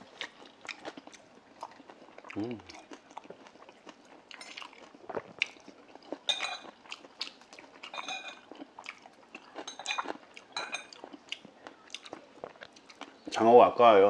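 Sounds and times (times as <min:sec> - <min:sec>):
chewing and wet mouth noises: 0:00.0 - 0:13.3
chopsticks clinking against dishes: 0:06.3 - 0:06.7, 0:07.8 - 0:08.5, 0:09.6 - 0:11.1.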